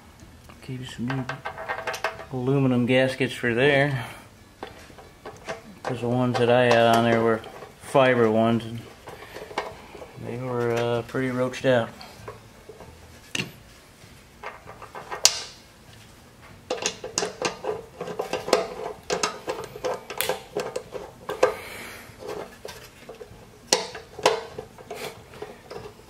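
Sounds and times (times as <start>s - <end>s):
small metal parts knocking: 1.1s - 2.3s, 16.7s - 21.6s, 22.2s - 26.0s.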